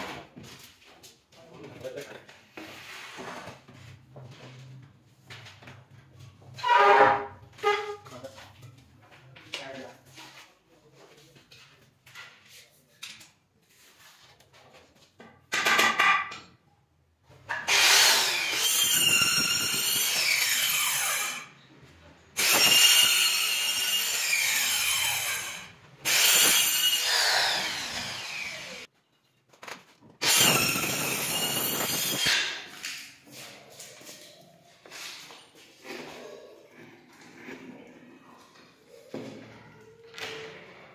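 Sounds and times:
circular saw cutting panel: 0:17.7 - 0:21.5, 0:22.4 - 0:28.9, 0:30.2 - 0:32.7.

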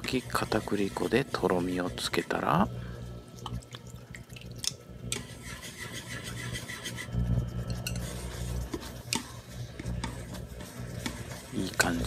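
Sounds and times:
utensil stirring and scraping pan: 0:00.0 - 0:02.7, 0:05.1 - 0:12.0
steady low hum: 0:00.0 - 0:12.0.

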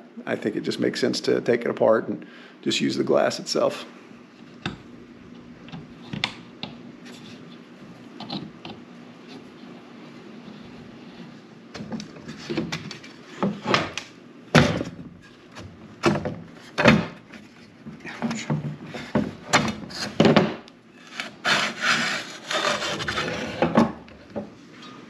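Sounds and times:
wood rubbing and scraping: 0:21.0 - 0:23.9.

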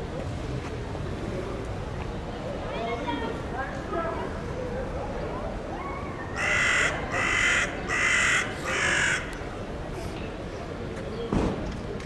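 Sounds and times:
bird giving harsh caws: 0:06.4 - 0:09.3.

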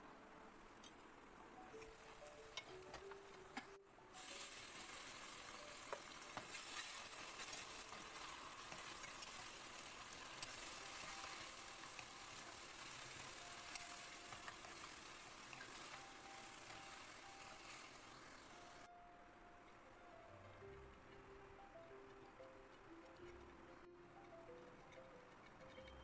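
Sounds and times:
vegetables sizzling in a wok: 0:00.7 - 0:18.9.

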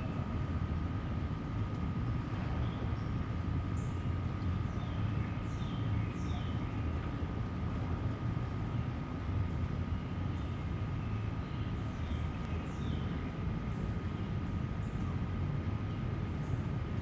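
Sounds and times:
low mechanical rumble: 0:00.0 - 0:17.0.

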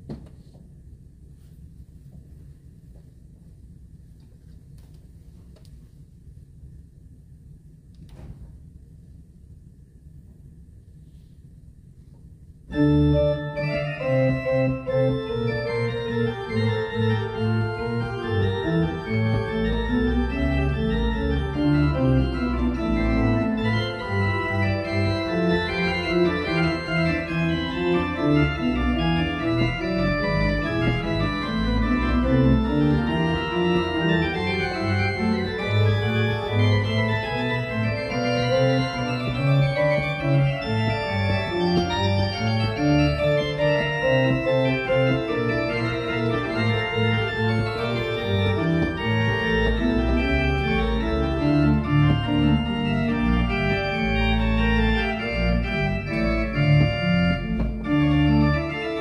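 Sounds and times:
pipe organ playing chords: 0:12.6 - 0:59.0.

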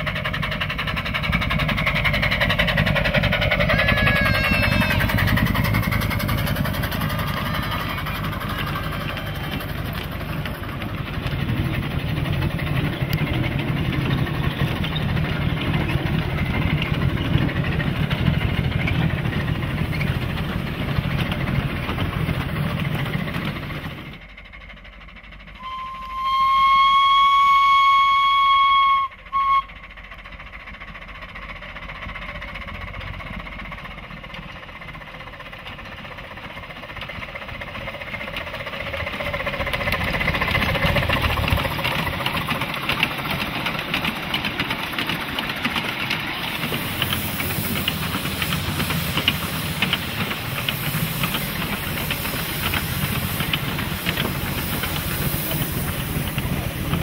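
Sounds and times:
train rumbling on rails: 0:00.0 - 0:57.0
steam whistle blast: 0:03.6 - 0:05.4, 0:25.6 - 0:29.8.

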